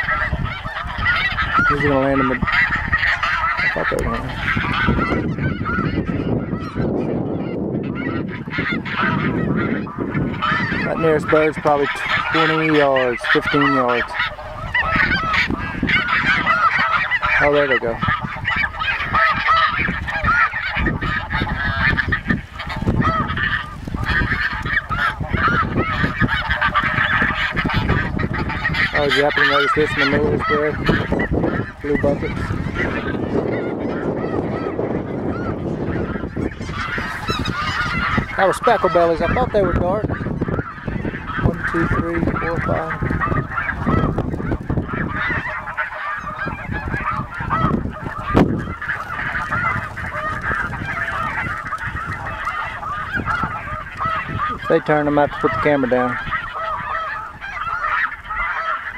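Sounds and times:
snow geese honking: 0.0 - 58.9
wind buffeting microphone: 0.0 - 58.9.

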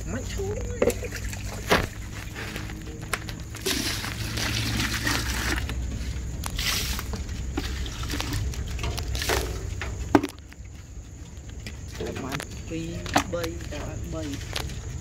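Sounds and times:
steady low hum: 0.0 - 15.0
fish flapping in water: 0.8 - 12.0.

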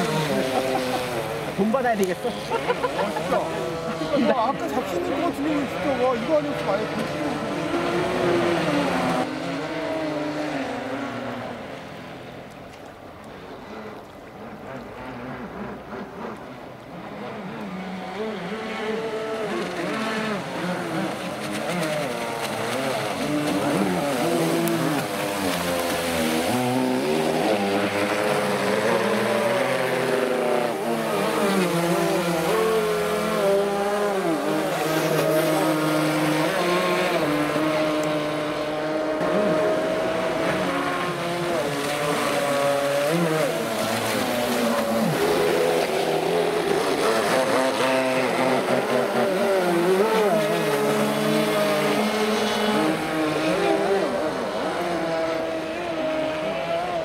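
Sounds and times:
model speedboat motors: 0.0 - 57.0.

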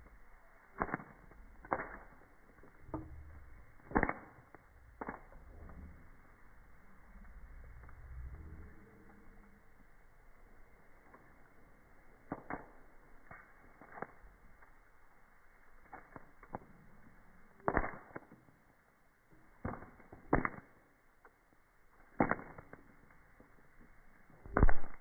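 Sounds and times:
slowed popcorn pops as deep thuds: 0.8 - 5.4, 17.6 - 18.5, 19.6 - 20.8, 22.2 - 22.8, 24.4 - 25.0.

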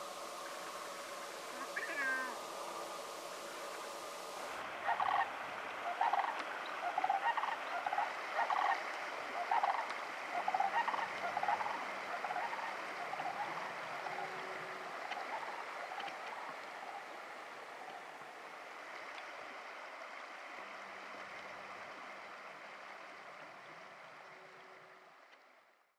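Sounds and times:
shallow creek rushing: 0.0 - 25.7
grouse clucking: 1.5 - 2.5, 4.8 - 17.1.

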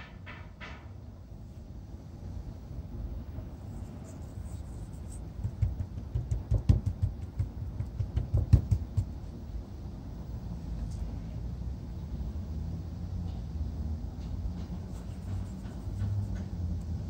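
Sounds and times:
fingers patting and rubbing fish: 3.8 - 9.2, 14.8 - 16.6.

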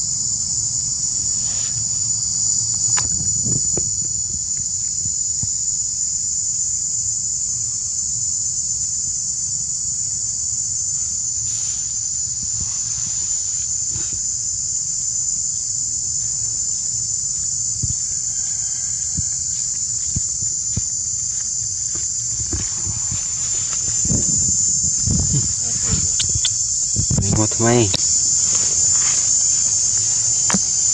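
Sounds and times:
insects droning: 0.0 - 30.9
faint ticks: 25.3 - 28.7.

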